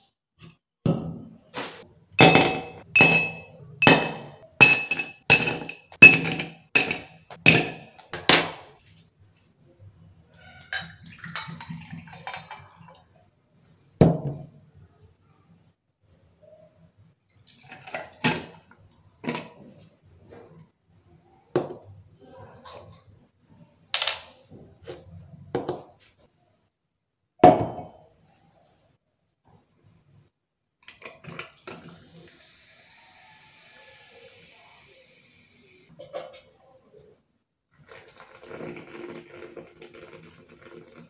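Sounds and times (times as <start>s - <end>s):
liquor trickling into glass: 10.7s - 13.0s.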